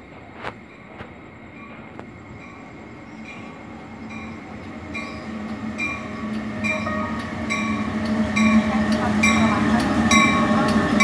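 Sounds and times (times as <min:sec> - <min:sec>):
electric locomotive hum: 0:00.0 - 0:11.0
locomotive bell ringing: 0:02.4 - 0:11.0.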